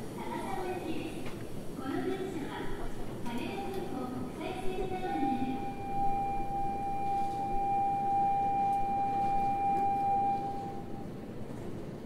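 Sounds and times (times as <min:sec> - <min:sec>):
electronic signal buzzer tone: 0:05.6 - 0:11.0.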